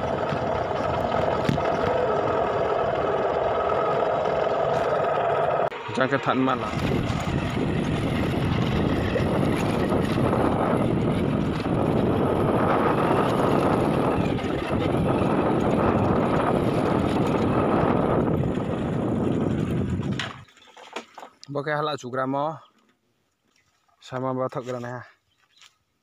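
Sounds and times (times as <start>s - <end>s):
wind on microphone: 0.0s - 5.5s, 6.5s - 20.4s
vehicle engine running: 0.0s - 20.4s.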